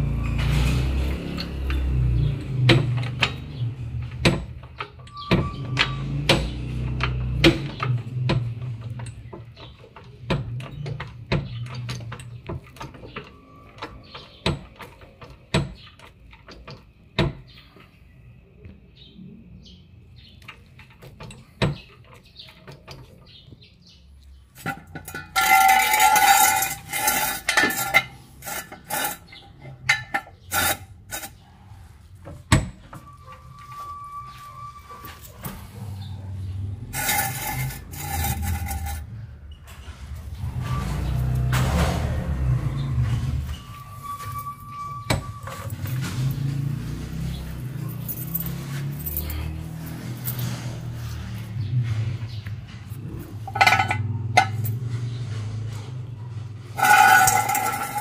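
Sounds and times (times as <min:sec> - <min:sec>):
rough rattling: 0:24.6 - 0:31.5, 0:32.4 - 0:55.7, 0:56.6 - 0:58.0.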